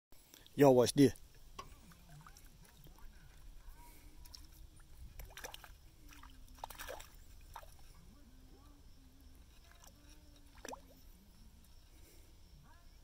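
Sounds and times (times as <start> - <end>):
fish splashing in water: 1.7 - 8.0, 9.6 - 11.1.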